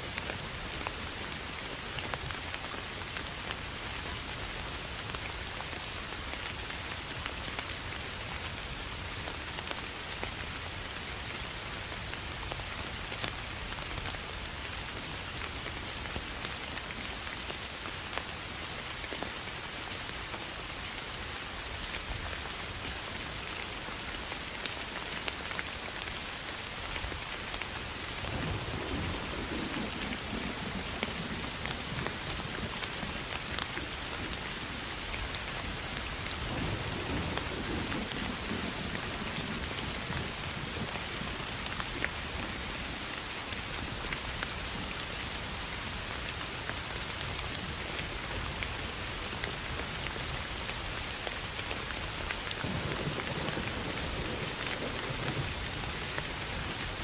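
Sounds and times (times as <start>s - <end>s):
rain on grass: 0.0s - 57.0s
low thunder rumble: 52.6s - 57.0s.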